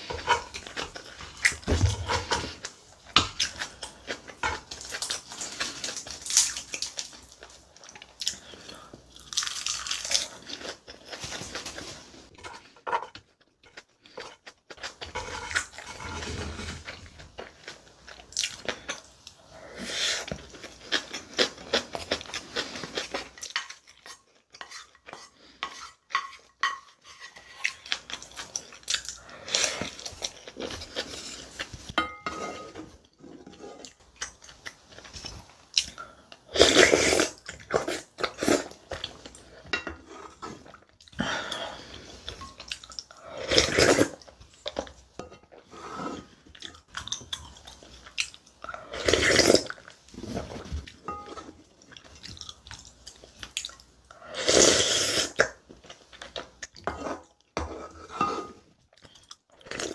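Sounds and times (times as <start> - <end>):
wooden spoon scraping ceramic bowl: 15.0 - 17.0, 24.6 - 27.8, 30.8 - 33.9, 56.8 - 58.7
chewing: 45.6 - 57.6.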